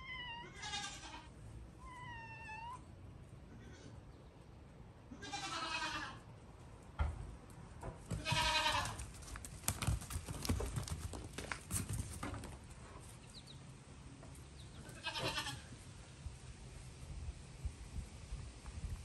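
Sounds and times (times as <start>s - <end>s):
goat kids bleating: 0.0s - 1.3s, 5.1s - 6.3s, 8.1s - 9.0s, 14.7s - 15.8s.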